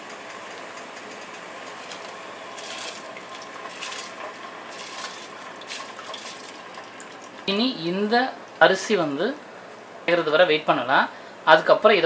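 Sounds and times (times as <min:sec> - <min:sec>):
boiling water hissing: 0:01.0 - 0:07.6
rice splashing into water: 0:02.6 - 0:07.4.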